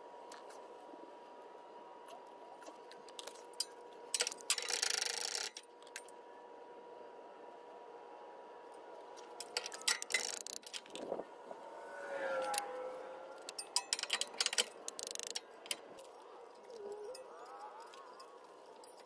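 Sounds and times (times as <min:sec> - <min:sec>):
metallic clicks of tools handled: 0:03.1 - 0:06.1, 0:09.2 - 0:11.1, 0:13.4 - 0:19.0
rattling run of ticks: 0:04.2 - 0:05.6, 0:09.4 - 0:11.1, 0:13.4 - 0:19.0
wavering tone: 0:16.0 - 0:19.0.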